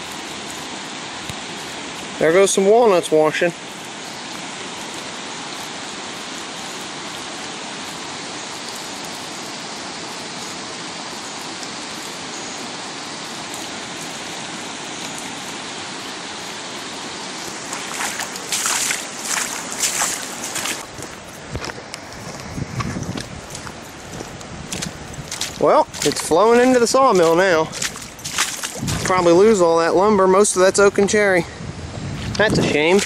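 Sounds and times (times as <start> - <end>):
floodwater rushing over grass: 0.0 - 31.4, 32.3 - 33.0
scuffs and knocks: 17.6 - 29.2.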